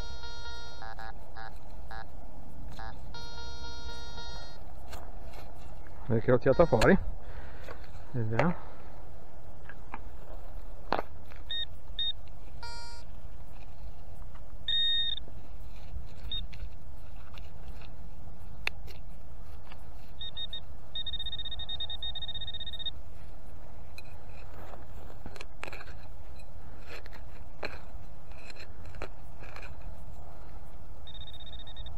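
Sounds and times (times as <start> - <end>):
metal detector beeps: 0.0 - 2.1, 2.7 - 4.6, 6.1 - 7.1, 11.4 - 13.1, 14.6 - 16.7, 20.0 - 23.0, 31.0 - 31.9
metal detector low buzz: 0.0 - 7.1, 11.3 - 13.9, 14.6 - 16.8, 20.0 - 25.2, 29.4 - 31.9.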